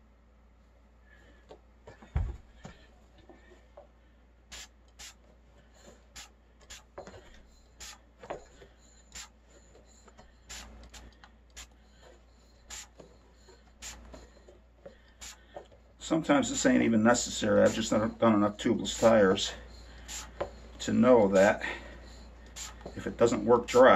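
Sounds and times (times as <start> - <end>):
spray bottle squirts: 4.5 - 5.2, 6.1 - 7.0, 7.8 - 8.0, 9.1 - 9.4, 10.5 - 11.8, 12.7 - 13.1, 13.8 - 14.2, 20.0 - 20.4, 22.5 - 23.0.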